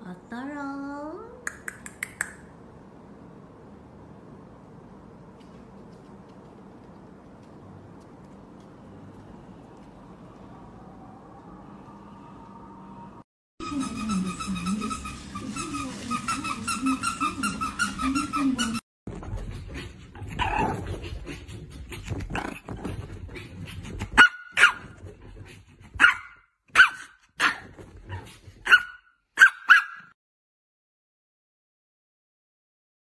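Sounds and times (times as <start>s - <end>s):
steady wavering pitched sound: 10.1s - 13.2s
dog barking: 24.2s - 24.9s, 26.0s - 27.7s, 28.6s - 30.2s.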